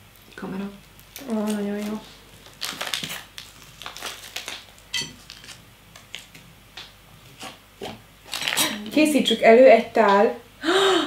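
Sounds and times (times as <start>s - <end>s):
plastic wrappers rustling: 0.8s - 6.5s, 8.2s - 9.1s.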